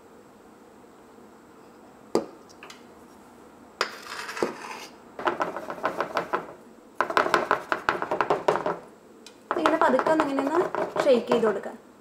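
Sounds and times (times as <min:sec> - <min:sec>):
pan scraping: 0:03.8 - 0:06.4.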